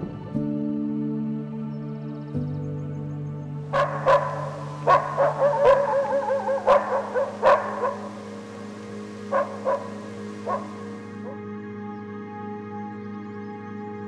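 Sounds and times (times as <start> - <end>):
soft background music: 0.0 - 14.0
dog barking: 3.7 - 8.4, 9.2 - 11.4.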